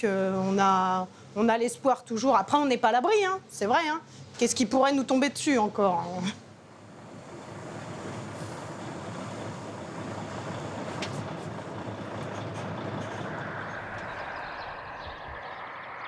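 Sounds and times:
truck driving past: 6.7s - 16.0s
faint rising whine: 12.8s - 16.0s.

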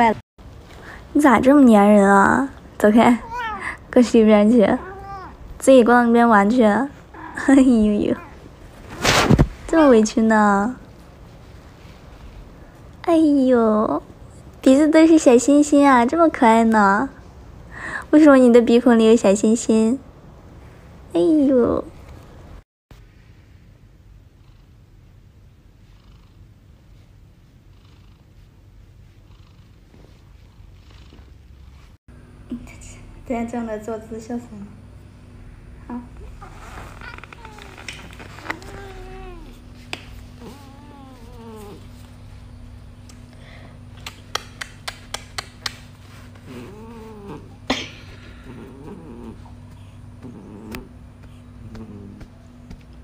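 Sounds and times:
cat purring: 3.1s - 4.0s, 27.7s - 31.7s, 35.8s - 42.8s, 46.0s - 52.8s
cat meowing: 3.2s - 3.8s, 4.8s - 5.4s, 36.4s - 39.6s, 40.4s - 41.9s
soft breaths: 17.6s - 18.1s, 43.2s - 44.0s, 45.9s - 52.4s
sharp smacking clicks: 43.9s - 45.9s.

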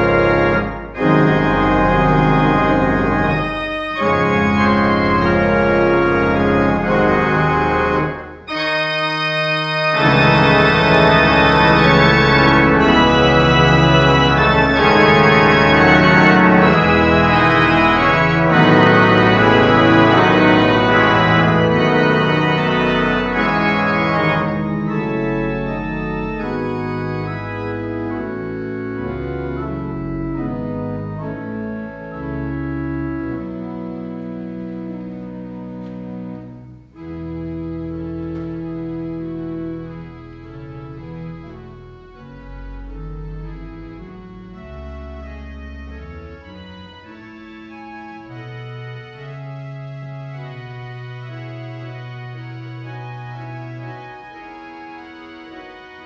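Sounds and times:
pipe organ playing chords: 0.0s - 56.0s.

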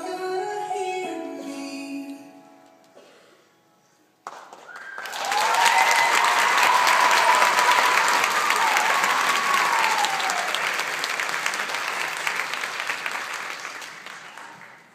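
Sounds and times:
audience applause: 4.3s - 14.9s
crowd cheer: 4.6s - 14.9s.

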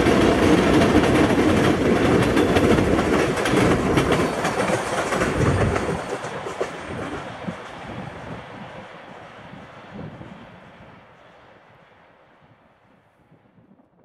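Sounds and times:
train wheels clicking over rail joints: 0.0s - 8.8s.

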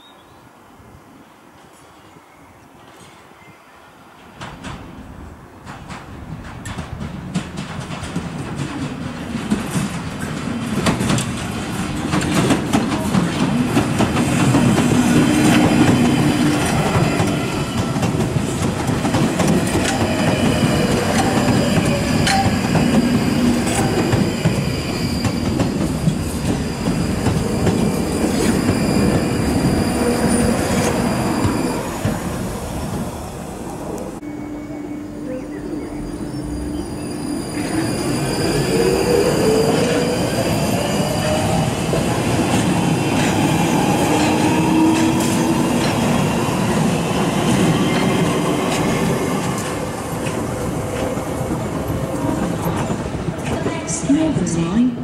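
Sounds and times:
rising train whine: 0.0s - 55.0s
train wheels clicking over rail joints: 4.2s - 33.1s, 41.2s - 53.8s
high wheel squeal: 19.8s - 32.6s, 34.2s - 42.0s.

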